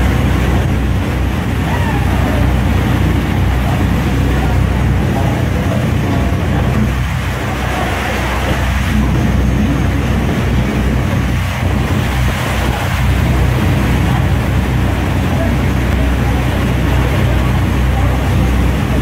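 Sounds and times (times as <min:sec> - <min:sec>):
waterfall roaring: 0:00.0 - 0:19.0.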